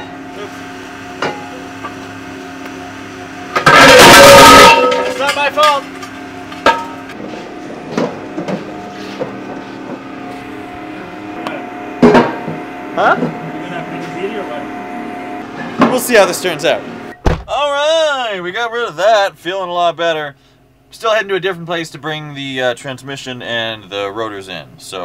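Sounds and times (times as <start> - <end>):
steady background hum: 0.0 - 25.0
metal wheel rims clanging: 3.6 - 7.2.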